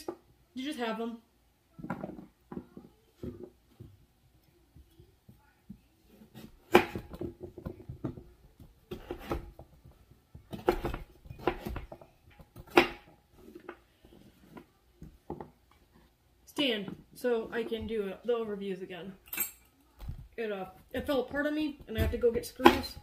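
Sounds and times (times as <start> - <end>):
knife chopping on wooden board: 6.4 - 7.3, 8.9 - 9.6, 10.5 - 12.0.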